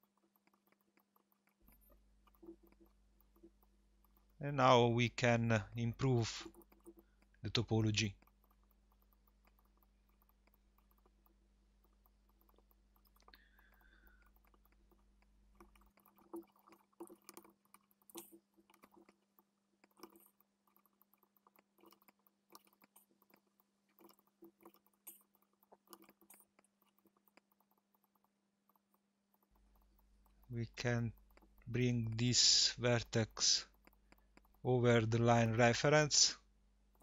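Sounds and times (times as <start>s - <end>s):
computer mouse clicks: 0.0s - 36.2s
low electrical hum: 0.0s - 37.0s.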